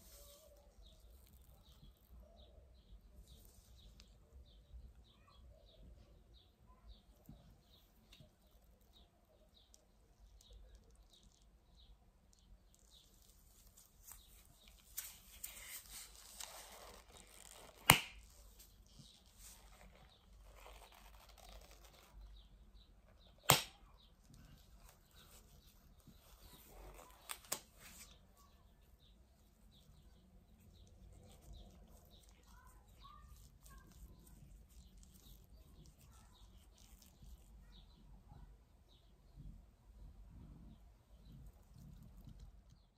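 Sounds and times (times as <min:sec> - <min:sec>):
latex gloves rustling: 0:00.0 - 0:02.2, 0:07.3 - 0:37.9
latex glove snaps: 0:17.5 - 0:18.3, 0:23.4 - 0:23.8.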